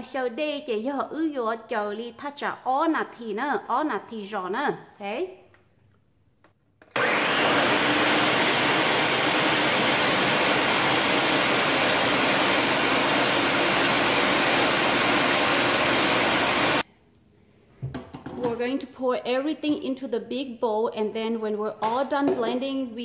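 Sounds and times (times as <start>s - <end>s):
blenders whirring at high speed: 6.9s - 16.8s.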